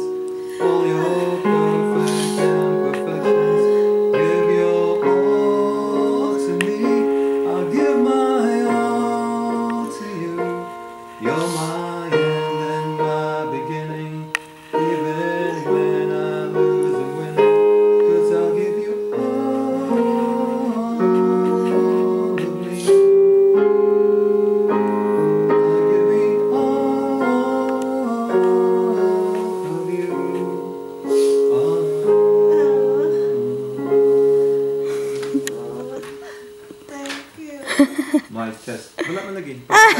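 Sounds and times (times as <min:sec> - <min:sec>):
man singing into a microphone: 0:00.0 - 0:23.2, 0:25.2 - 0:34.5
electronic keyboard piano chords: 0:00.0 - 0:38.4.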